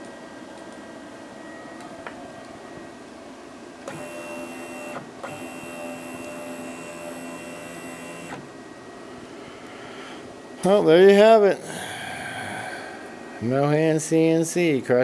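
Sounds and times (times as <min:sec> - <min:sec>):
stepper motor whine: 0:03.8 - 0:08.5.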